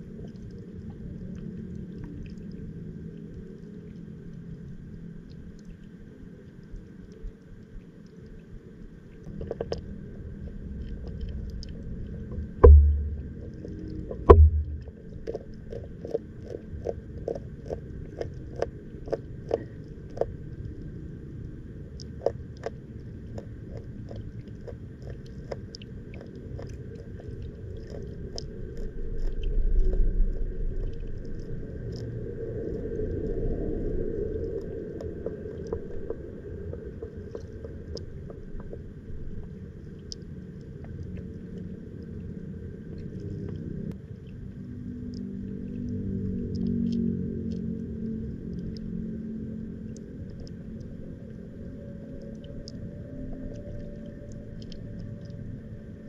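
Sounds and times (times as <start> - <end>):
muffled underwater rumbling: 0.0 - 56.0
sharp underwater clicks: 10.7 - 20.9, 45.1 - 49.0.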